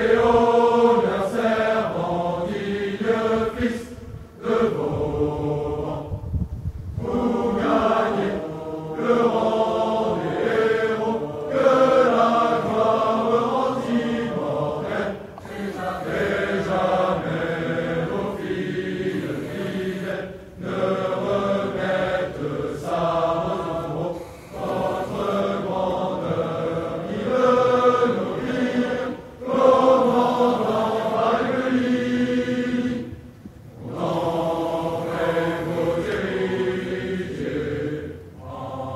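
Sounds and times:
choir singing a cappella: 0.0s - 38.9s.

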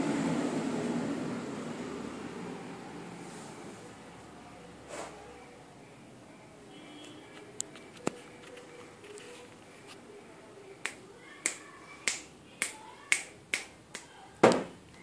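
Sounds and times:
fingers snapping: 10.8s - 14.1s.

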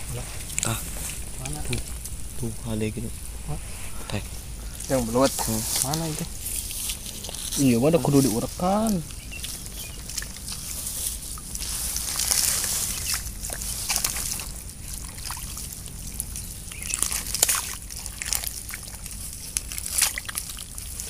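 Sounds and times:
hands squelching in wet mud: 3.3s - 21.0s
trickle of running water: 3.8s - 21.0s
wet smacks and splashes: 9.1s - 21.0s.

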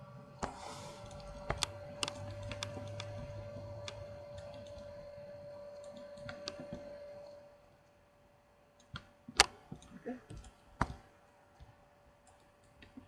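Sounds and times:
faint hum: 0.0s - 13.0s
keyboard and mouse clicks: 0.4s - 5.2s, 5.8s - 7.0s, 8.8s - 11.0s, 11.6s - 13.0s.

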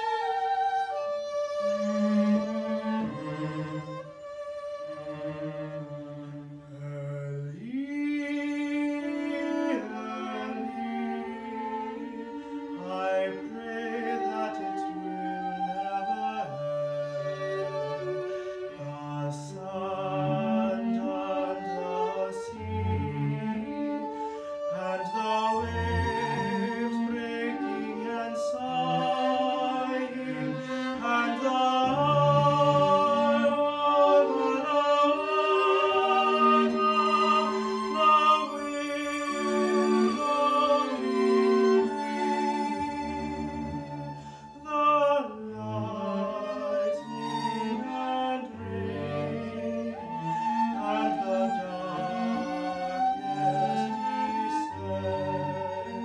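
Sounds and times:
bowed violin and cello: 0.0s - 56.0s
young man singing with vibrato: 24.7s - 42.2s.

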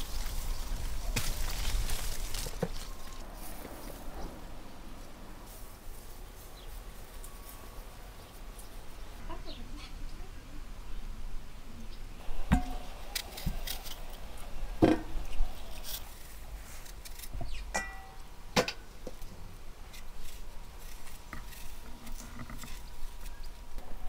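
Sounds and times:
clinks against metal bowls: 17.7s - 18.8s.

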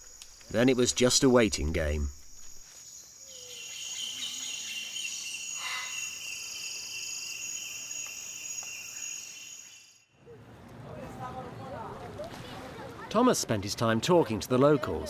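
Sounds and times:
insects buzzing: 0.0s - 10.1s.

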